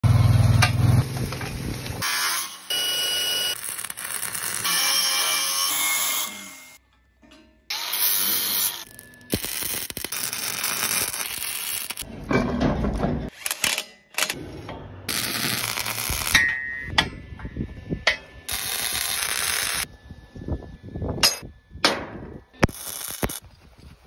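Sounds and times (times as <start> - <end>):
angle grinder cutting steel: 2.0 - 6.8, 7.7 - 12.0, 15.1 - 16.5, 18.5 - 19.9.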